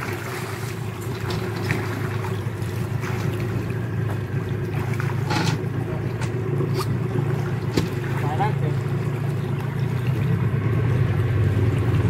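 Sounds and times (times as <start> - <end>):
short knocks or splashes: 0.0 - 9.3
outboard motor running: 0.0 - 12.0.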